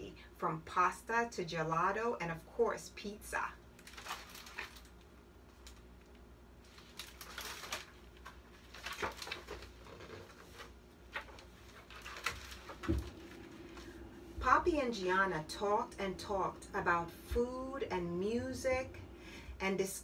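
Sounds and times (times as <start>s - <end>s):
faint steady hum: 0.0s - 20.0s
book pages rustling: 6.6s - 14.0s.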